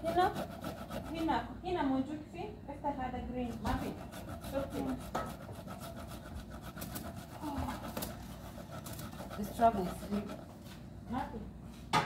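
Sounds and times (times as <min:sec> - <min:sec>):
scraping on metal baking tray: 0:00.0 - 0:01.4, 0:03.6 - 0:10.8.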